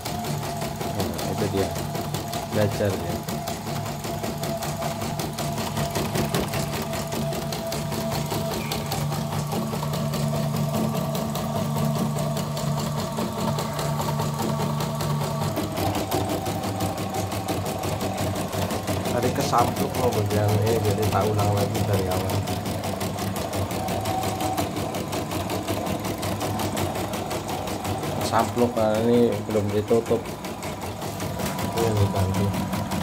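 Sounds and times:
embroidery machine needle clatter: 0.0s - 33.0s
motor hum: 0.0s - 33.0s.

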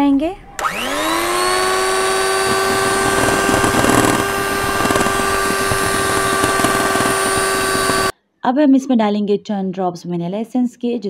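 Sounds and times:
electric hand mixer whine: 0.6s - 8.1s
beaters churning batter: 0.7s - 8.1s.

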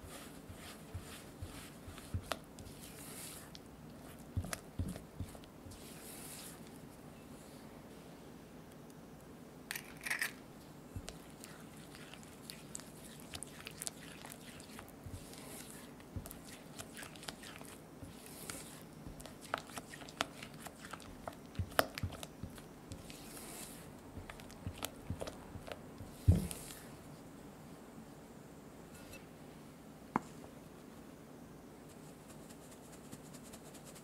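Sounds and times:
spatula mixing in glass bowl: 0.0s - 6.6s, 11.0s - 26.8s.

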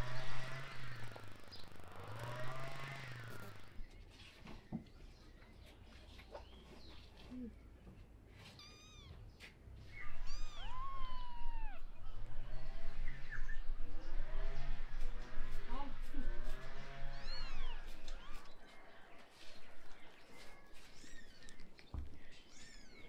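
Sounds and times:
kittens mewing: 8.5s - 9.2s, 10.0s - 12.1s.

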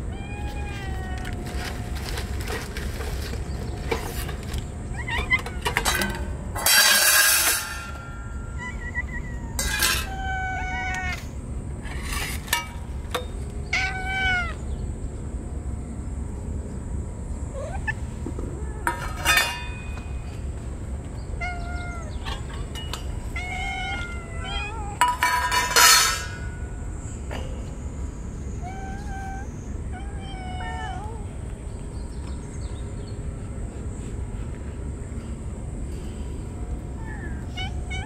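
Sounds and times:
cats meowing: 0.0s - 12.0s, 13.5s - 14.8s, 17.5s - 26.8s, 28.3s - 31.9s, 36.6s - 38.0s.

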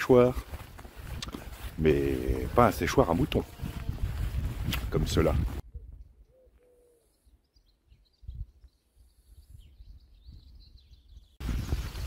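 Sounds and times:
low wind rumble: 3.4s - 6.3s, 7.8s - 12.0s
small birds chirping: 5.8s - 12.0s.

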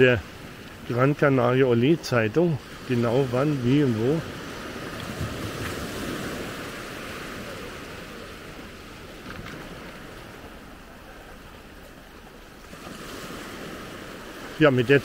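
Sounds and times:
small waves washing on sand: 0.0s - 15.0s.

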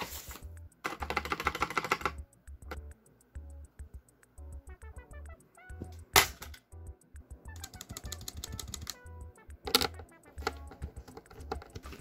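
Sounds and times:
background music with steady beat: 0.0s - 12.0s
mechanical keyboard key clacks: 0.9s - 2.9s, 7.6s - 9.0s.

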